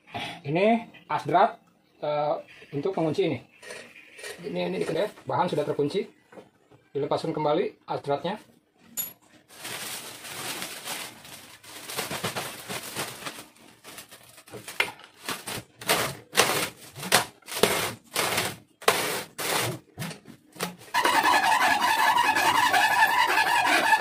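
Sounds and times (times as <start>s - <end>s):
cardboard tube scraping metal shaft: 3.6s - 5.2s, 15.8s - 24.0s.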